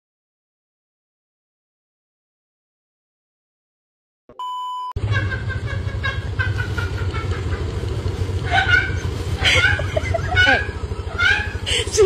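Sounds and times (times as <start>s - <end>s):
test-tone beep: 4.3s - 5.0s.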